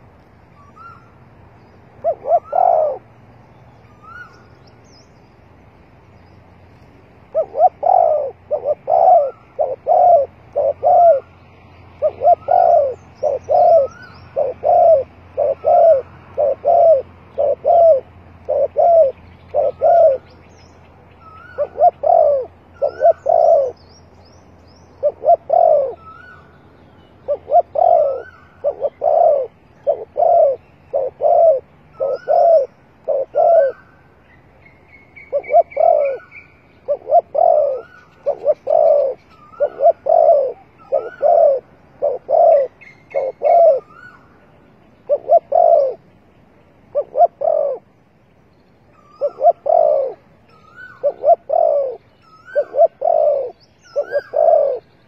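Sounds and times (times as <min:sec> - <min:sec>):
small birds chirping: 0:00.0 - 0:55.0
dove cooing: 0:01.9 - 0:03.1, 0:07.2 - 0:20.5, 0:21.2 - 0:23.8, 0:24.9 - 0:26.5, 0:27.3 - 0:34.0, 0:35.2 - 0:44.4, 0:45.0 - 0:46.2, 0:46.8 - 0:48.0, 0:48.9 - 0:55.0.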